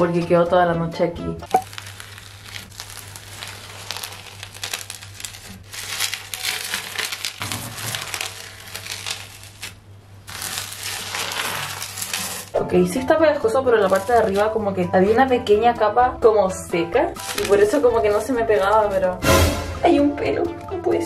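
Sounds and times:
bubbles popping and crust crackling: 1.4 - 19.2
hand squishing slime: 1.5 - 12.6.

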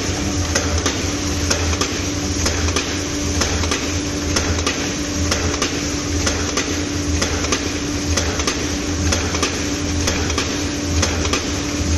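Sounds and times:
machinery low pulsing hum: 0.0 - 11.9.

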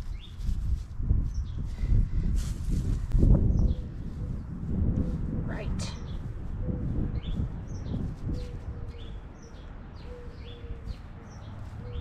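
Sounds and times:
songbirds chirping: 0.0 - 0.4, 3.3 - 12.0.

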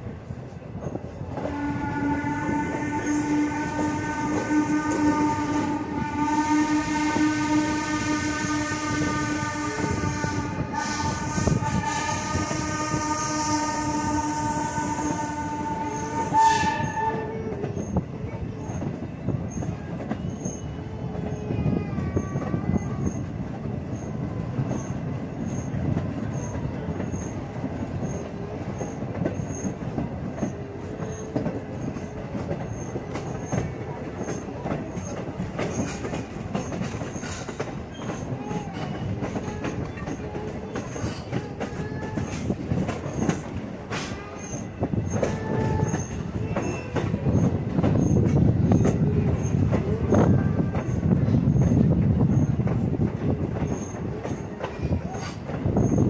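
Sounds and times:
train wheels clickety-clack: 0.0 - 56.0
steam locomotive whistle: 1.4 - 17.6, 43.9 - 47.2
wheels squealing: 16.8 - 21.5.

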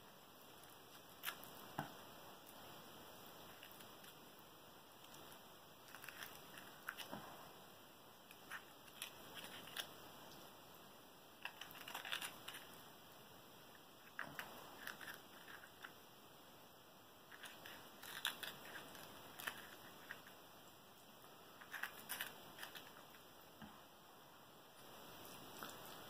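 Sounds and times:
avocado skin being peeled: 8.2 - 10.5, 11.4 - 12.8.

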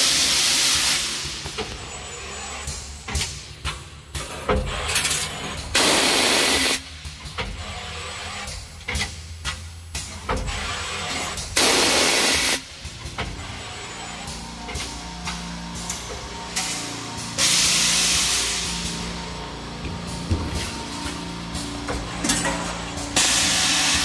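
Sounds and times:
loud air hiss bursts: 0.0 - 1.6, 5.8 - 7.0, 11.6 - 12.9, 16.6 - 20.2, 23.1 - 24.0
machine clicks and knocks: 7.0 - 7.8, 8.4 - 11.6, 12.8 - 13.6
low machine hum: 12.8 - 24.0.

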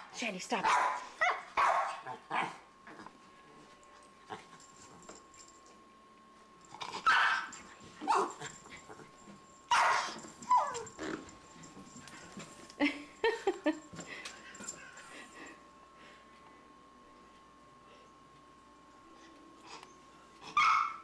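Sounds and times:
dog barking and yipping: 0.6 - 2.1, 7.0 - 8.4, 9.7 - 10.9, 20.6 - 21.0.

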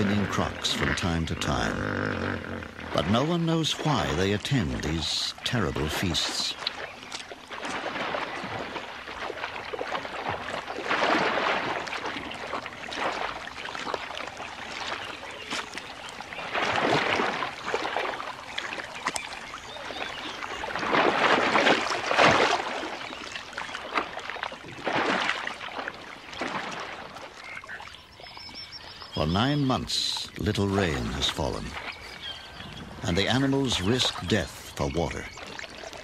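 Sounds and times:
crocodiles splashing in water: 5.8 - 27.8.

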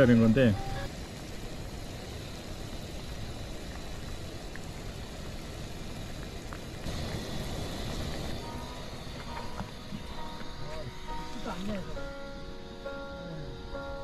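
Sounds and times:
soup boiling and bubbling: 0.0 - 10.5
high hiss: 0.0 - 14.0.

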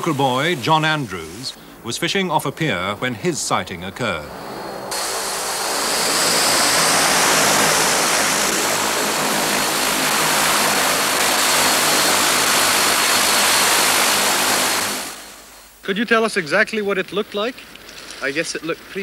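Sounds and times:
floatplane engine and propeller drone: 2.5 - 15.6.

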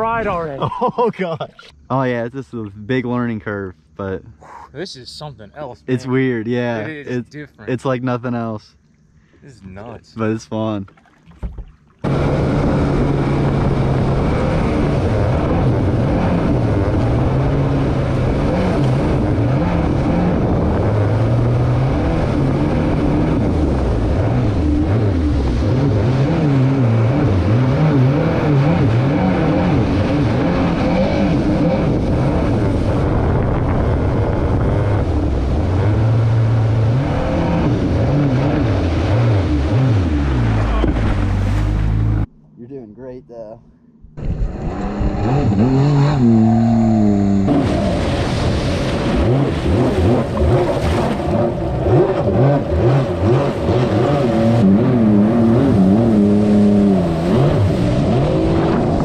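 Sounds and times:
jet ski engine revving: 12.0 - 42.3, 44.2 - 59.0.

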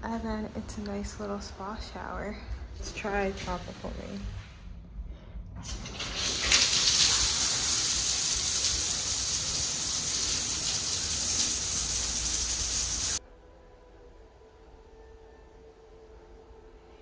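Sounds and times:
shower water pouring: 5.6 - 13.2.

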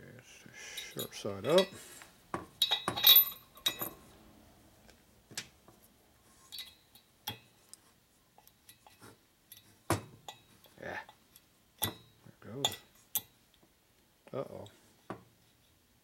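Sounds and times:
metal collar clinking: 2.6 - 4.0, 6.5 - 7.5.

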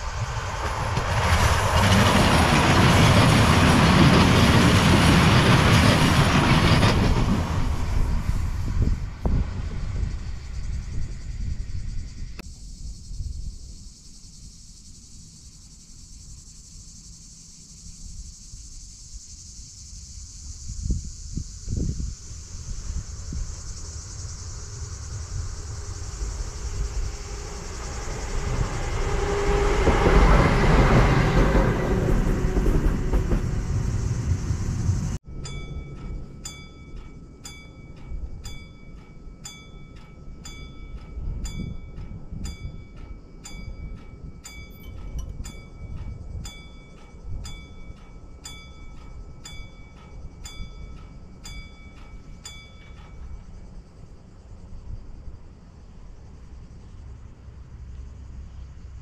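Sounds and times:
train passing: 0.0 - 12.4, 21.9 - 59.0
level-crossing bell dinging: 35.3 - 53.5.

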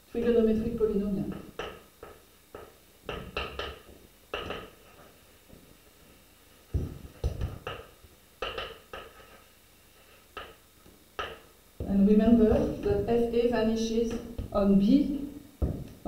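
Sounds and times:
chalk tapping and scratching: 1.3 - 5.2, 6.7 - 10.6.

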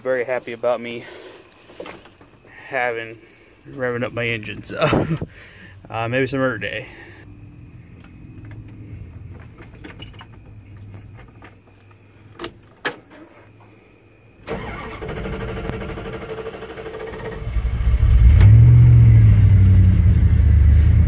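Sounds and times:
engine starter cranking: 14.4 - 18.6
engine running: 14.5 - 21.0.

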